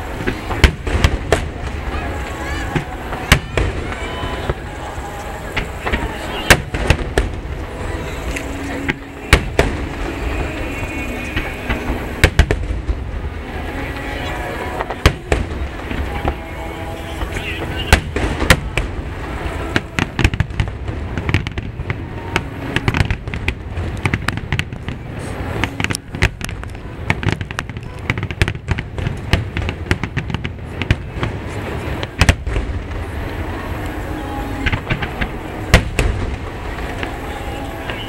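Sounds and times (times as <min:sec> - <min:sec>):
fireworks booming and cracking: 0:00.0 - 0:38.0
low rumble: 0:00.0 - 0:38.0.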